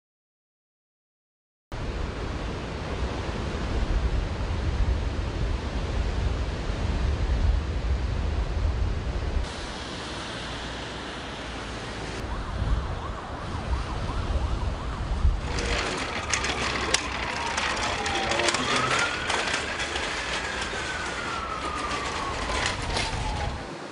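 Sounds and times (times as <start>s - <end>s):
emergency vehicle siren: 11.4s - 23.9s
clicking and clattering: 15.4s - 23.6s.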